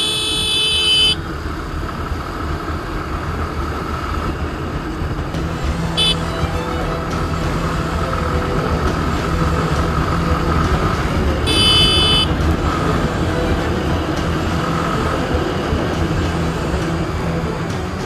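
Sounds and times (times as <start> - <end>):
motorcycle engine drone: 0.0 - 18.0
road and wind noise: 0.0 - 18.0
short high-pitched horn toot: 6.0 - 7.0, 11.5 - 12.3.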